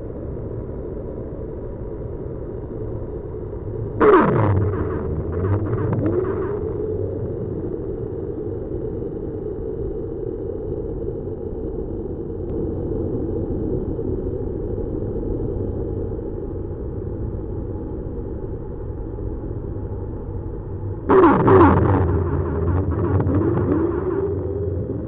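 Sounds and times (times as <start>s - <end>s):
low noise drone: 0.0s - 25.0s
burst of noise with swooping pitches: 4.0s - 6.8s, 21.1s - 25.0s.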